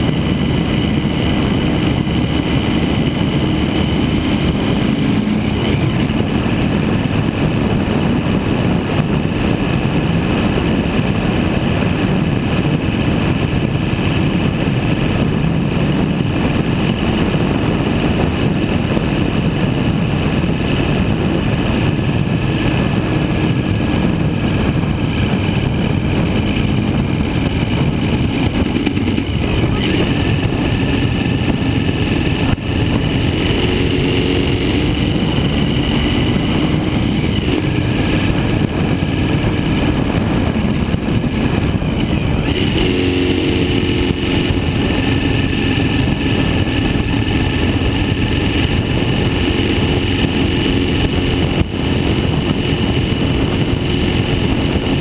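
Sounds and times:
motorcycle engine running: 0.0s - 55.0s
wind rush over microphone: 0.0s - 55.0s.

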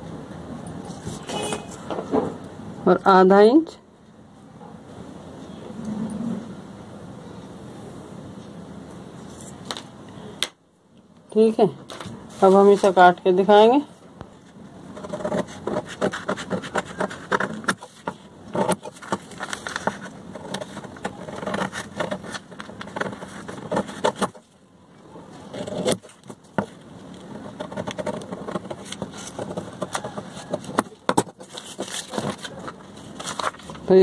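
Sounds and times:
paper rustling: 11.9s - 13.1s, 14.3s - 24.6s, 25.3s - 34.0s
scissors cutting paper: 15.0s - 24.4s.

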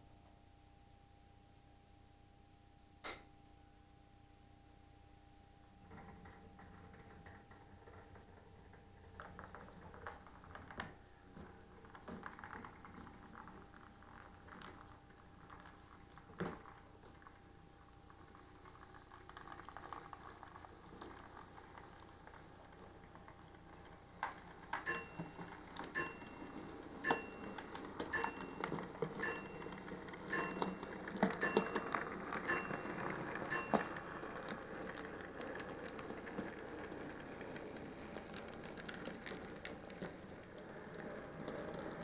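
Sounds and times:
model train running on track: 25.9s - 42.0s
sharp ringing clicks: 30.3s - 30.8s, 31.4s - 34.0s.

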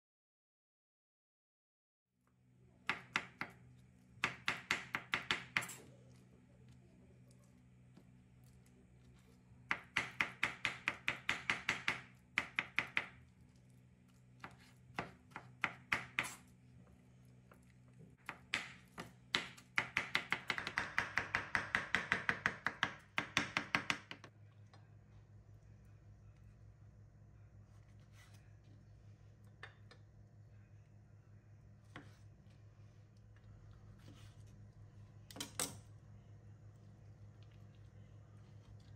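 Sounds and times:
knife chopping on wooden board: 2.9s - 3.6s, 4.2s - 5.8s, 9.7s - 13.2s, 14.4s - 16.4s, 18.2s - 24.3s.

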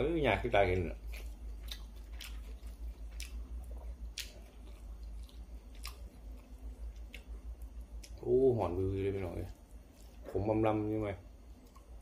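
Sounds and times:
low steady hum: 0.0s - 12.0s
person chewing food: 0.8s - 8.3s, 9.3s - 10.4s, 11.5s - 12.0s.

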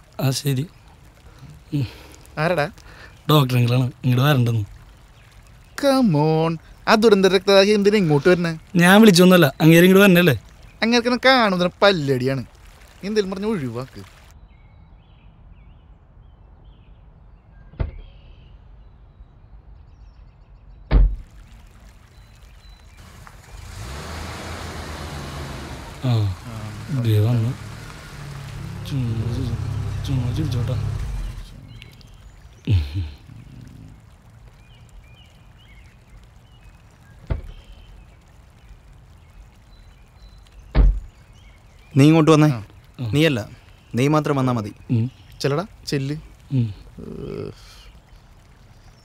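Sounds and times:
low outdoor rumble: 21.2s - 49.0s
car door slamming: 40.8s - 41.1s.

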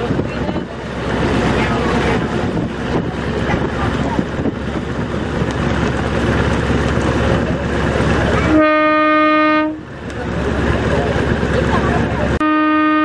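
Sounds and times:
water noise: 0.0s - 12.4s
boat engine: 0.0s - 13.0s
wind: 0.0s - 13.0s
boat horn blast: 8.4s - 9.9s, 12.4s - 13.0s.

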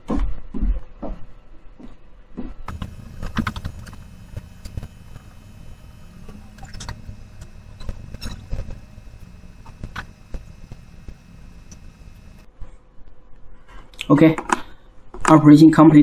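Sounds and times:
steady low hum: 2.6s - 12.6s.

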